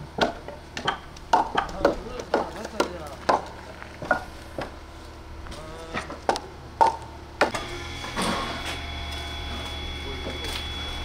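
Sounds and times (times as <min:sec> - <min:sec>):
wooden logs knocking together: 0:00.0 - 0:04.8, 0:05.9 - 0:07.6
steady whine: 0:03.4 - 0:11.0.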